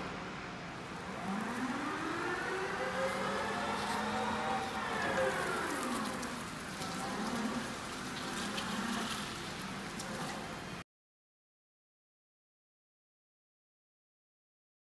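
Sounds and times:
electric forklift motor whining: 0.8 - 10.3.

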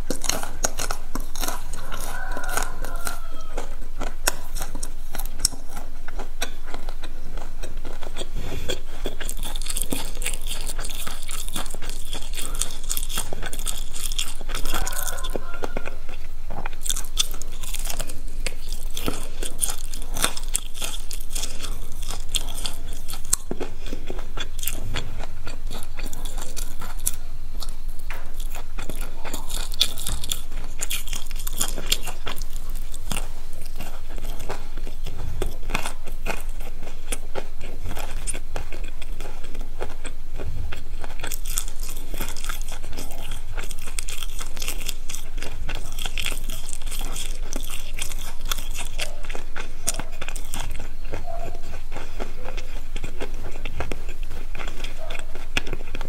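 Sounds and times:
crunchy chewing of fried food: 0.0 - 56.0.

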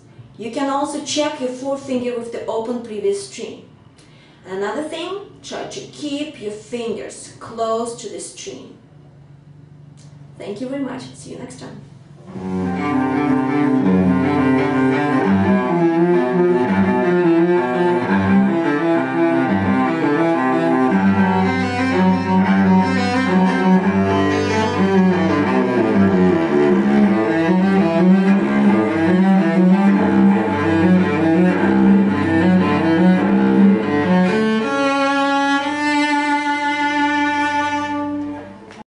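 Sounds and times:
bowed cello melody: 12.2 - 38.8.

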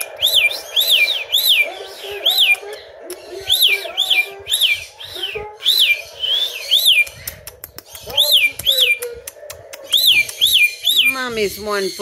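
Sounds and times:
cockatiel whistling: 3.4 - 7.3, 9.9 - 11.2
short bird clicks: 6.7 - 11.1.

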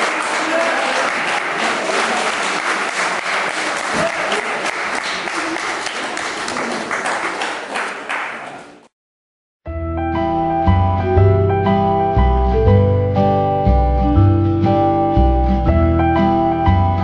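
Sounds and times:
audience applauding: 0.0 - 8.9
instrumental music: 9.7 - 17.0.

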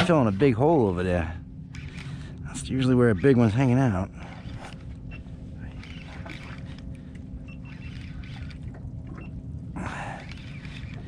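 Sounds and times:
water lapping against boat hull: 0.0 - 1.0, 1.7 - 11.0
faint steady low hum: 0.0 - 11.0
small ticks: 4.5 - 9.4.

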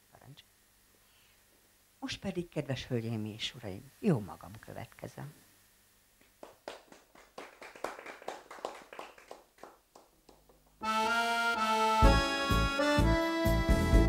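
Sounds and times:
people clapping: 6.2 - 10.8
electronic keyboard folk tune: 10.8 - 14.0.

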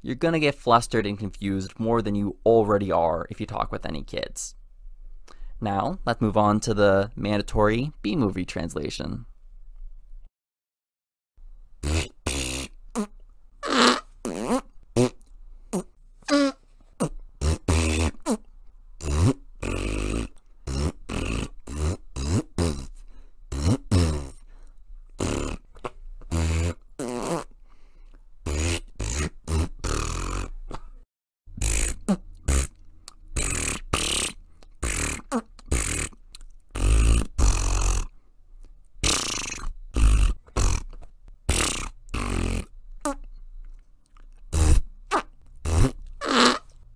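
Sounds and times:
fart-like sounds: 11.8 - 18.4, 19.0 - 24.4, 25.2 - 27.5, 28.4 - 30.9, 31.6 - 38.1, 39.0 - 43.2, 44.5 - 46.8.

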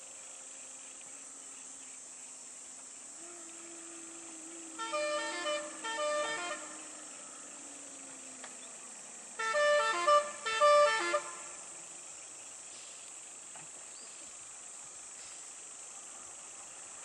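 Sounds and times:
high insect hiss: 0.0 - 17.0
lorry musical horn: 3.2 - 8.0, 9.4 - 11.7.

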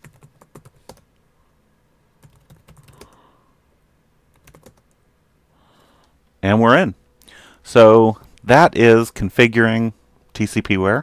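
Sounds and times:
faint keyboard typing: 0.0 - 1.2, 2.2 - 3.3, 4.3 - 5.0.

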